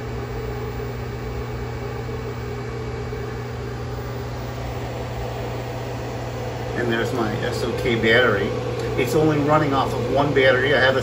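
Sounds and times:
microwave oven humming: 0:00.0 - 0:11.0.

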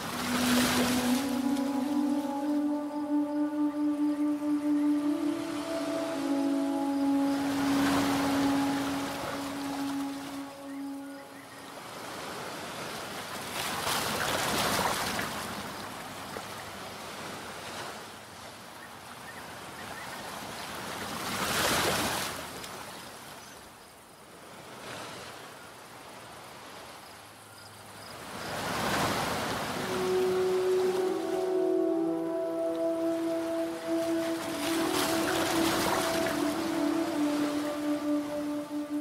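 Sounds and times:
waves washing onto shore: 0:00.0 - 0:18.3, 0:28.3 - 0:39.0.

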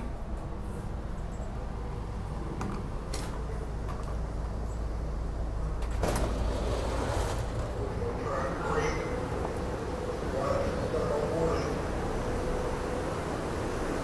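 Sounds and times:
train door opening: 0:00.0 - 0:10.4
train idling hum: 0:00.0 - 0:14.0.

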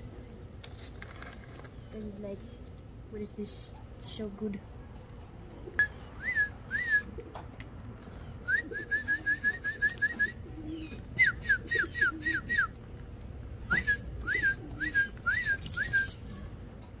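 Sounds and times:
songbird whistling: 0:05.7 - 0:07.3, 0:08.2 - 0:12.8, 0:13.6 - 0:16.5.

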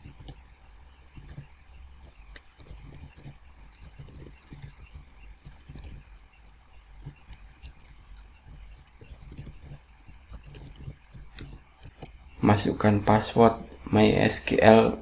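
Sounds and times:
faint low hum: 0:00.0 - 0:15.0
keyboard typing clicks: 0:01.2 - 0:06.1, 0:07.0 - 0:12.2.

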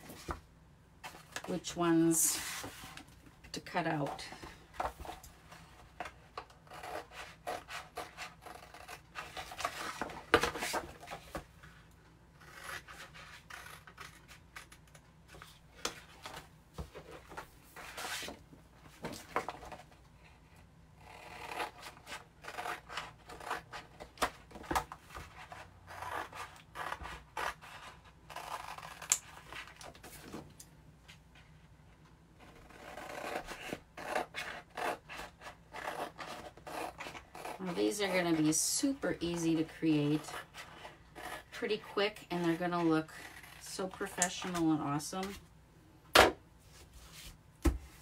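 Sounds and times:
scissors snipping sheets: 0:43.7 - 0:45.4.

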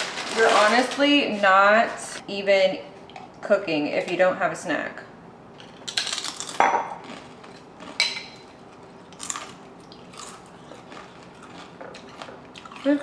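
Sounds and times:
person crunching a chip: 0:05.6 - 0:08.0, 0:09.1 - 0:13.0.

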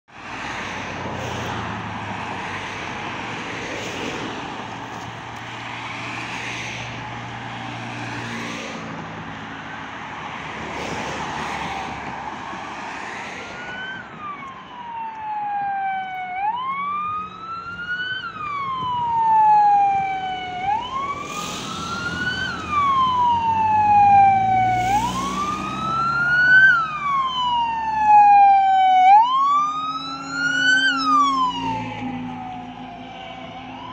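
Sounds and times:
road and engine noise: 0:00.0 - 0:33.9
fire engine siren wailing: 0:11.0 - 0:33.9.

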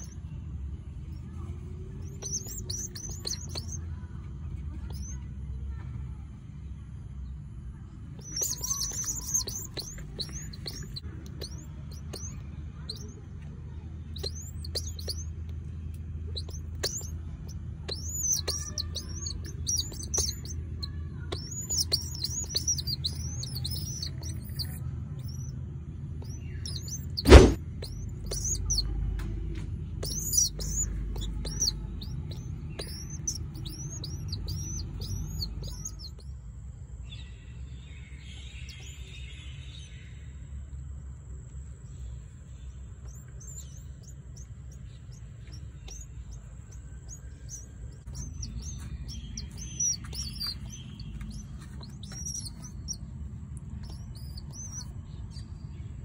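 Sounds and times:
pigeon squabs peeping: 0:00.0 - 0:00.2, 0:01.1 - 0:04.0, 0:04.6 - 0:05.2, 0:08.1 - 0:13.3, 0:14.0 - 0:36.3, 0:42.7 - 0:55.6
sharp knock: 0:27.2 - 0:27.6.

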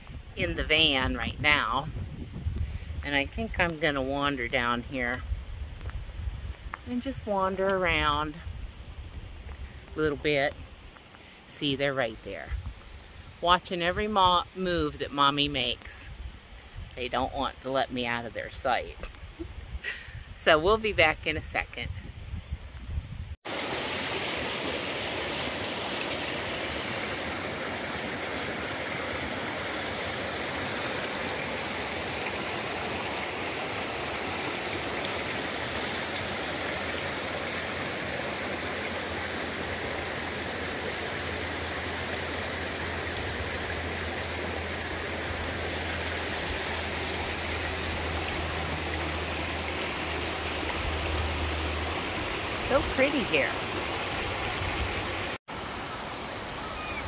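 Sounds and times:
stream flowing: 0:23.4 - 0:57.0.

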